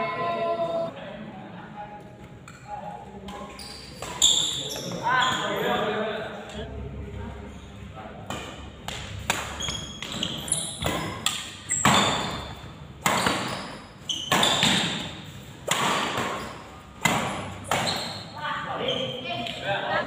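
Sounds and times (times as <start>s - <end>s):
shoes squeaking on court: 3.3s - 5.8s, 9.5s - 15.3s, 17.3s - 19.6s
rackets hitting shuttlecock: 8.3s - 18.2s.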